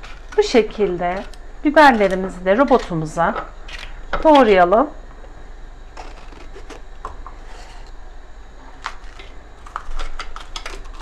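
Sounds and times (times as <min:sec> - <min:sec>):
knife cutting peppers: 0:00.0 - 0:03.1.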